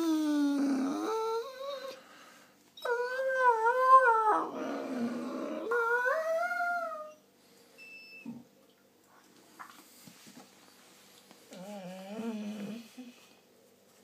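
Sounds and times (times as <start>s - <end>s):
dog howl-like moans: 0.0s - 2.0s, 2.8s - 7.2s, 11.6s - 13.1s.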